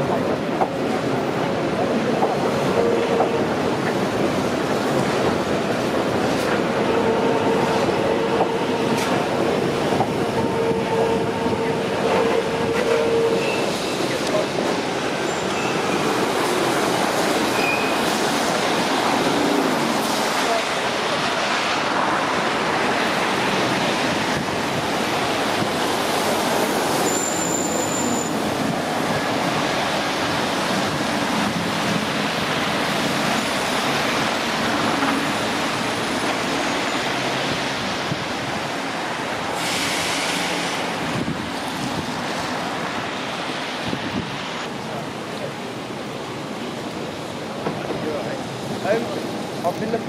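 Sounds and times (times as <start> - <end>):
trains: 0.0 - 50.0
short high squeal: 12.8 - 14.0, 17.5 - 18.0, 27.0 - 28.4
wind on microphone: 23.7 - 26.2, 40.0 - 42.4, 43.7 - 44.7.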